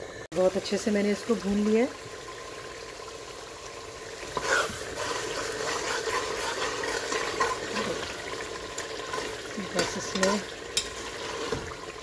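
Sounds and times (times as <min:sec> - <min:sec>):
curry sizzling and bubbling: 0:00.0 - 0:12.0
spoon scraping a pot: 0:04.2 - 0:11.8.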